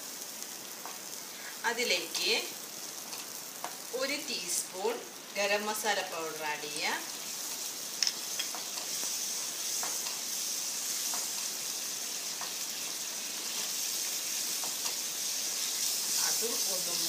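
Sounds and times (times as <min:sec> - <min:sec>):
paste sizzling in oil: 0:00.0 - 0:17.0.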